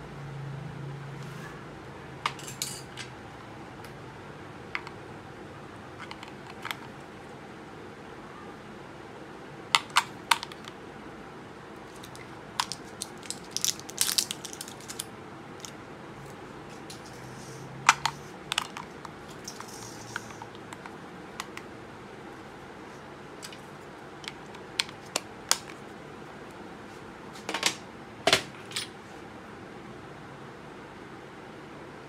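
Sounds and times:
plastic casing clicks and snaps: 0:12.0 - 0:15.7.

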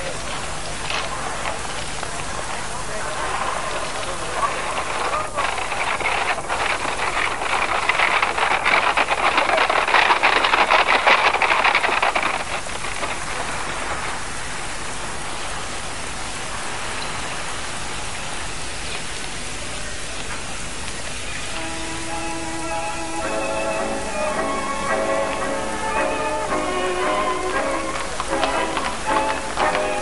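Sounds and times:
newspaper pages rustling: 0:00.0 - 0:14.6, 0:23.2 - 0:30.0
steady hiss: 0:00.0 - 0:30.0
music: 0:21.5 - 0:30.0.

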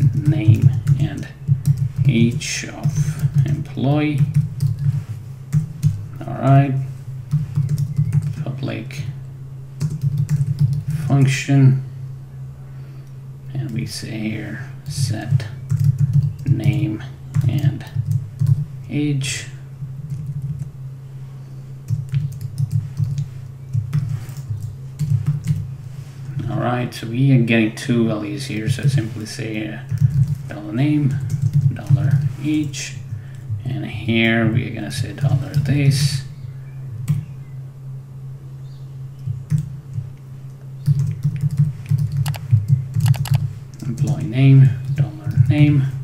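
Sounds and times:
keyboard typing: 0:00.0 - 0:02.1, 0:04.2 - 0:04.9, 0:07.3 - 0:08.4, 0:09.8 - 0:11.0, 0:15.7 - 0:18.6, 0:21.9 - 0:25.6, 0:29.9 - 0:30.5, 0:31.2 - 0:32.3, 0:40.8 - 0:44.2
steady low hum: 0:00.0 - 0:46.0
typing on computer keyboard: 0:07.3 - 0:08.4, 0:09.8 - 0:10.9, 0:15.7 - 0:16.8, 0:29.9 - 0:30.4, 0:31.2 - 0:31.7, 0:40.8 - 0:43.4.

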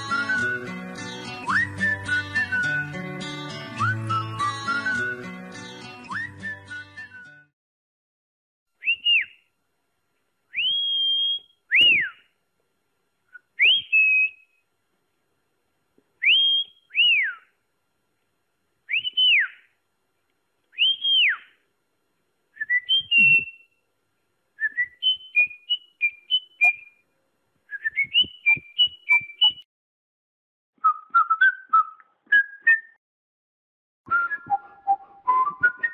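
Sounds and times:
person whistling calls: 0:00.0 - 0:00.8, 0:01.4 - 0:03.0, 0:03.8 - 0:05.3, 0:06.0 - 0:07.5, 0:08.8 - 0:09.4, 0:10.5 - 0:12.3, 0:13.3 - 0:14.6, 0:16.2 - 0:17.5, 0:18.9 - 0:19.7, 0:20.8 - 0:21.6, 0:22.6 - 0:23.7, 0:24.6 - 0:27.0, 0:27.7 - 0:29.7, 0:30.8 - 0:33.0, 0:34.1 - 0:35.9.

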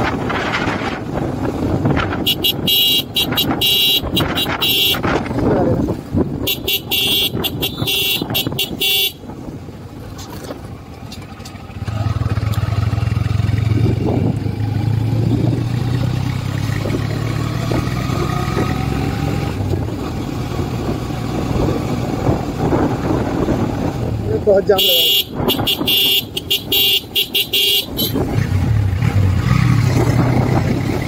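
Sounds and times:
wind rush on microphone: 0:00.0 - 0:10.8, 0:13.1 - 0:26.2, 0:27.9 - 0:31.0
motorcycle engine drone: 0:00.0 - 0:31.0.

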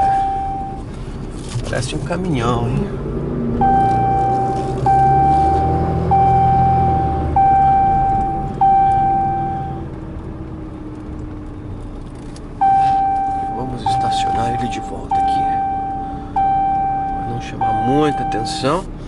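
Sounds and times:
dashboard warning chime dinging: 0:00.0 - 0:00.9, 0:03.6 - 0:09.9, 0:12.6 - 0:18.8
truck diesel engine drone: 0:00.0 - 0:19.0.

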